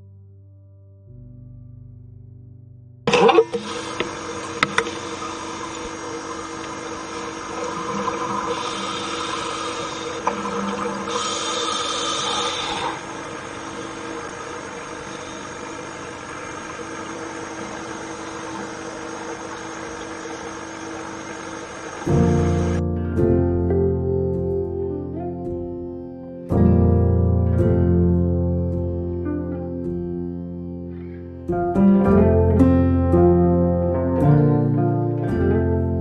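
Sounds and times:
machine hum with hiss: 0:03.1 - 0:22.8.

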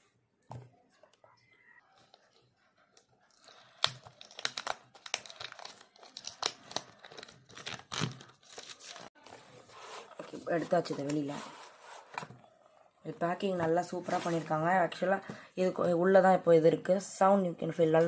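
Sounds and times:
cardboard packaging crinkling and tearing: 0:01.9 - 0:09.2.

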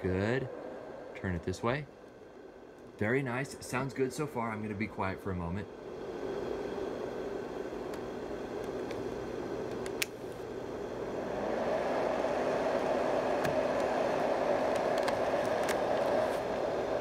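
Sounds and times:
white noise machines whirring: 0:00.0 - 0:17.0.

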